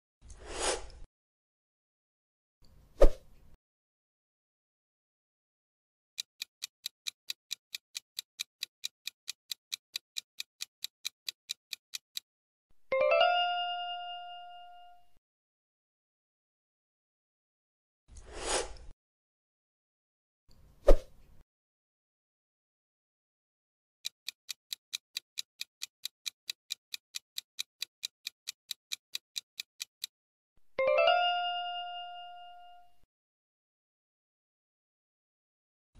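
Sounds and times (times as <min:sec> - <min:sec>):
clock ticking: 0:06.2 - 0:12.3, 0:24.0 - 0:30.2.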